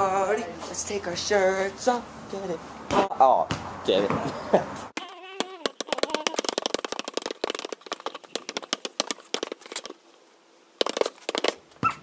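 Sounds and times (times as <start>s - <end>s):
basketball dribbling on hard court: 5.5s - 9.9s.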